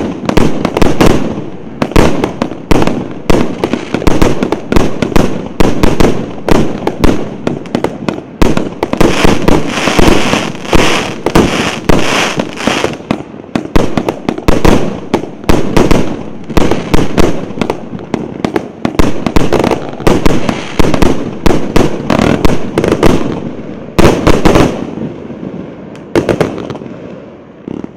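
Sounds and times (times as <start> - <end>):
fireworks bangs and pops: 0.0 - 27.9.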